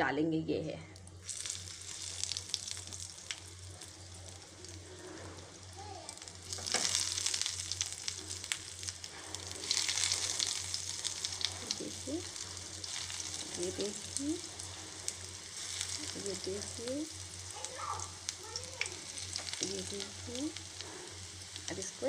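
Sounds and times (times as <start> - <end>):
food sizzling in hot oil: 0.9 - 22.0.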